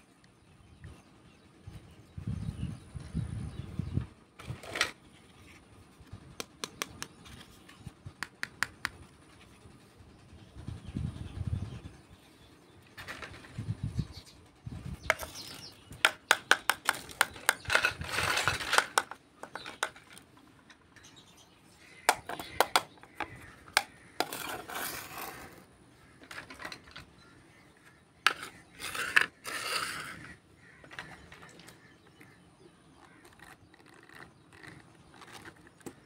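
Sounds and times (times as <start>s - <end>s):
plastic toy pieces clicking: 16.0s - 20.2s, 22.1s - 24.4s.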